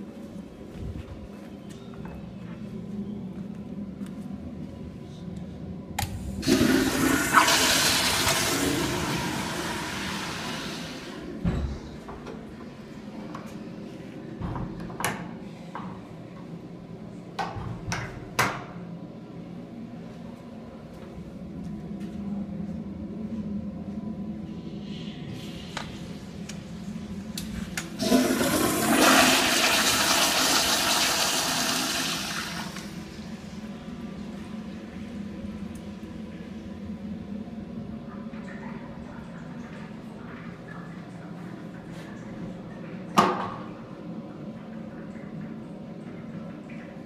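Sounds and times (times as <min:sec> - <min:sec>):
toilet flushing: 0:06.4 - 0:12.0, 0:27.5 - 0:33.7.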